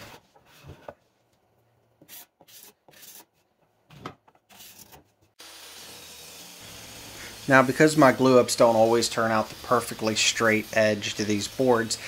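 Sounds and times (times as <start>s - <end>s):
steady hiss: 6.6s - 12.0s.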